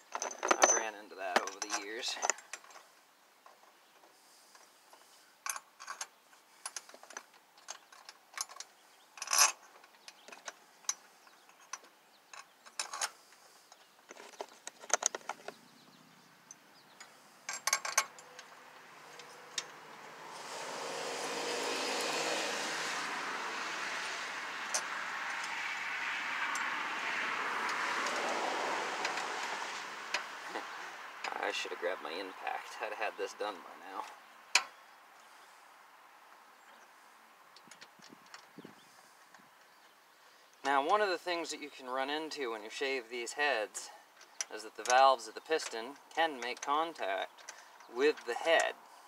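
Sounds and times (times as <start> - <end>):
metal bolts clinking: 0.0 - 2.8, 5.4 - 13.2, 16.5 - 19.8, 44.2 - 48.7.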